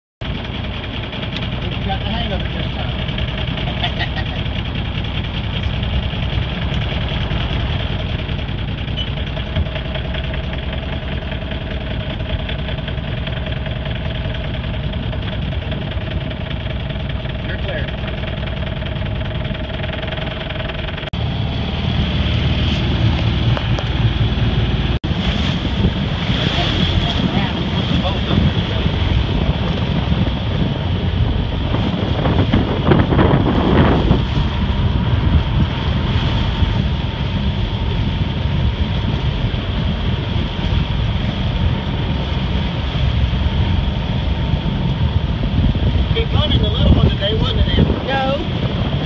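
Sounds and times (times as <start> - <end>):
boat engine idling: 0.2 - 49.0
water splashing along hull: 0.2 - 49.0
wind buffeting microphone: 21.0 - 49.0.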